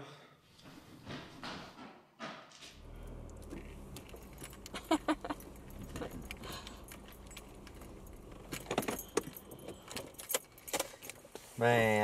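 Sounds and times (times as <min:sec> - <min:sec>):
car engine and road rumble: 0:02.7 - 0:12.0
light jangling rattles: 0:03.6 - 0:11.2.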